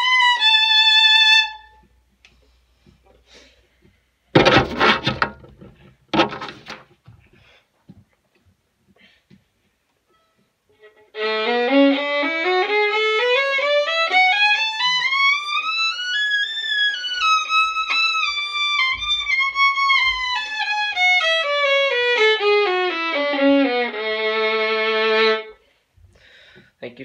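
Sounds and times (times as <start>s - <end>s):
solo violin playing a scale: 0.0s - 1.9s, 10.7s - 25.6s.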